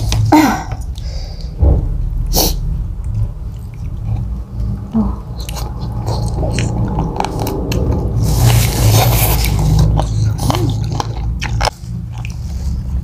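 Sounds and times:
chewing and smacking: 0:03.0 - 0:13.0.

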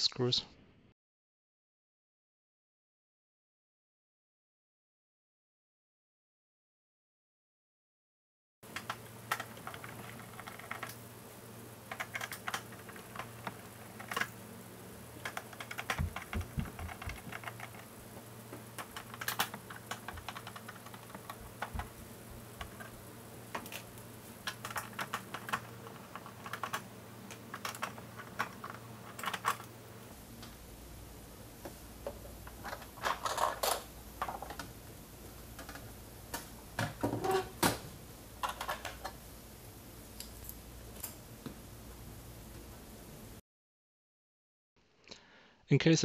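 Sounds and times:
steady low hum: 0:08.7 - 0:43.4.

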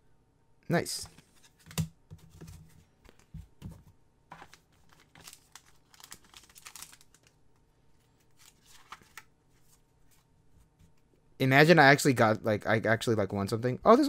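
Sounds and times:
cards rustling and clicking: 0:04.3 - 0:10.3
wrapper crinkling and tearing: 0:04.4 - 0:07.4.

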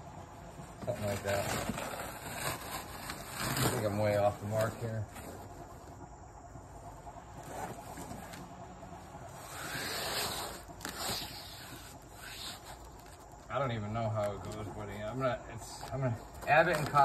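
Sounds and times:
foam sheet scraping on concrete: 0:00.8 - 0:05.7, 0:09.3 - 0:17.0
hiss: 0:09.4 - 0:13.1.

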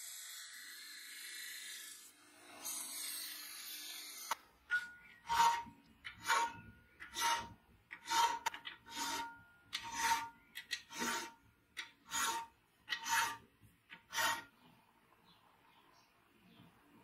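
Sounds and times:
file rasping on metal rod: 0:05.2 - 0:14.5.

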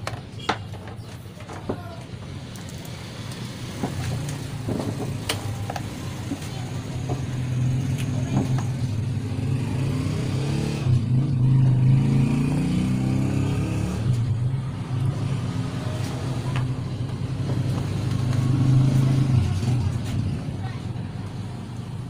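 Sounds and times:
vehicle engine revving: 0:07.1 - 0:20.3.

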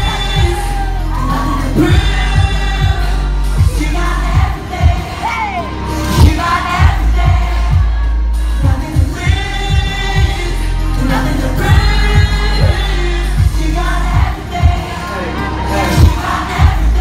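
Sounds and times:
heavy bass line: 0:00.0 - 0:17.0
loud backing music: 0:00.0 - 0:17.0
man singing into a microphone: 0:00.0 - 0:17.0.

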